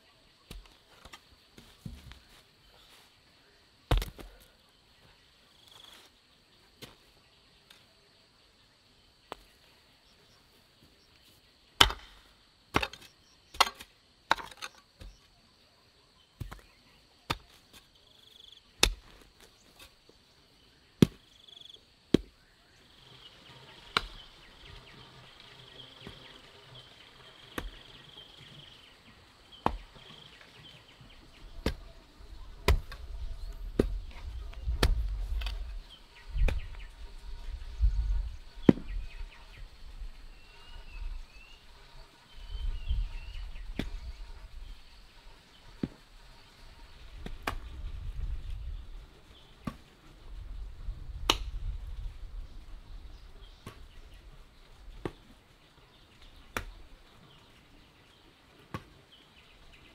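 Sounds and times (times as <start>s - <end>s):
hand hoe chopping into soil: 0.4s - 2.4s, 3.9s - 4.5s, 11.8s - 15.3s, 16.4s - 17.9s, 18.8s - 20.0s, 21.0s - 21.3s, 22.1s - 22.4s, 23.9s - 25.0s, 27.4s - 28.6s, 29.5s - 30.8s, 31.5s - 32.0s, 32.6s - 35.6s, 38.6s - 39.1s, 45.8s - 46.1s, 47.2s - 47.8s, 53.6s - 54.0s, 56.4s - 56.8s, 58.7s - 58.9s.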